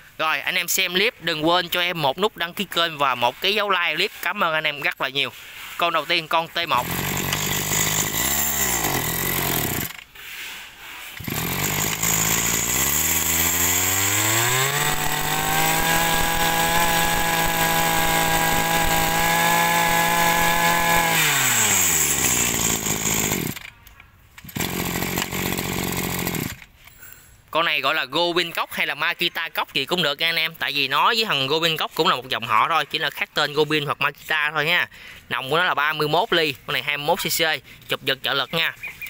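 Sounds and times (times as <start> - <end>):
brush-cutter engine idling and revving: 5.4 - 10.5, 11.1 - 23.8, 24.4 - 26.8.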